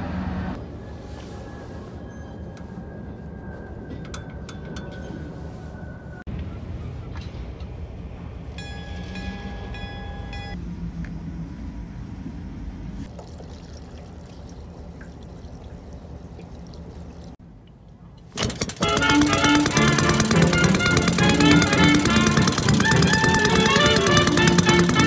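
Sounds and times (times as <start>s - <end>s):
fuel trickling and gurgling: 13.0s - 17.4s, 18.4s - 25.0s
high squeaky tone: 18.8s - 25.0s.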